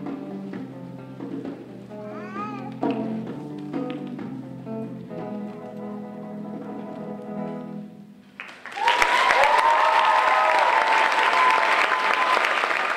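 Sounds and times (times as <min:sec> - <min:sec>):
audience applause and cheering: 0:08.4 - 0:12.9.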